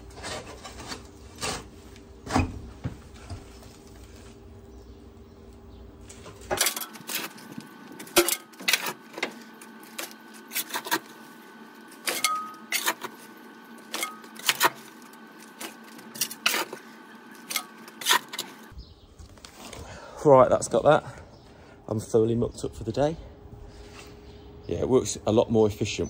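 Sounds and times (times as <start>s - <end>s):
metal tools scraping and clanking: 6.2s - 11.2s, 11.9s - 18.7s.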